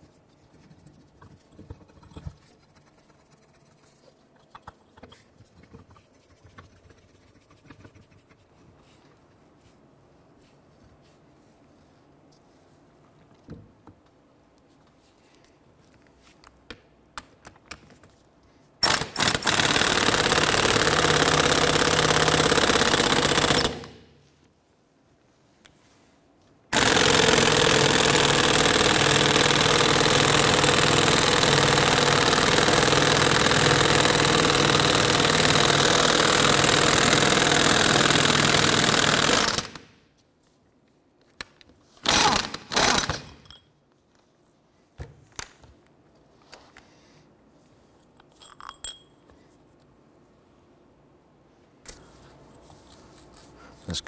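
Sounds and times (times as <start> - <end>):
air impact wrench hammering: 26.7 - 39.8, 42.0 - 43.4.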